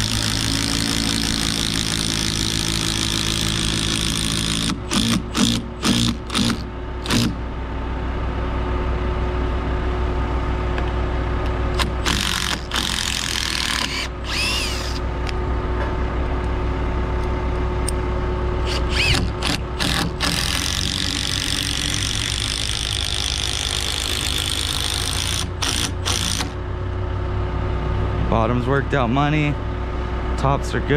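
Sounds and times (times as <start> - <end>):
impact driver driving screws: 0.0 - 7.4, 11.8 - 15.0, 18.6 - 26.6.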